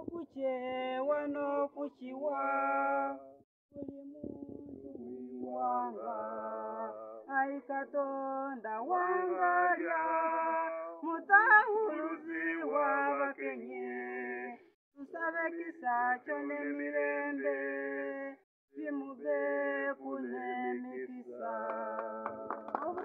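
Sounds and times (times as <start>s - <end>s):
boy singing unaccompanied: 3.8s - 6.6s.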